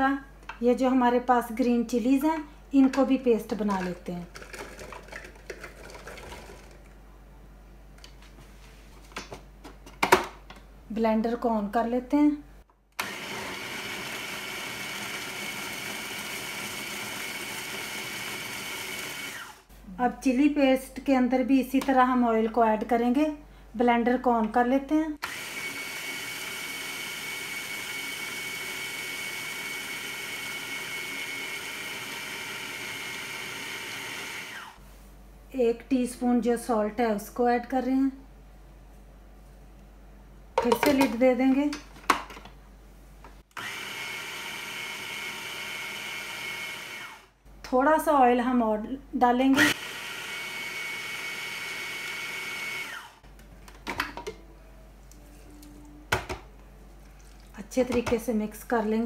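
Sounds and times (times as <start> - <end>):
food processor motor whining: 13.0 - 19.6, 25.2 - 34.8, 43.5 - 47.3, 49.6 - 53.2.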